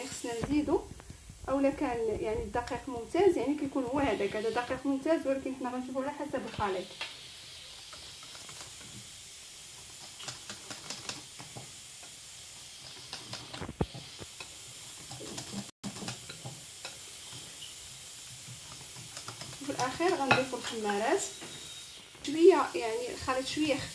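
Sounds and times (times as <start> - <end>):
whisk clicking on a bowl: 18.5 - 21.0
whisk knocking bowl: 18.9 - 21.0.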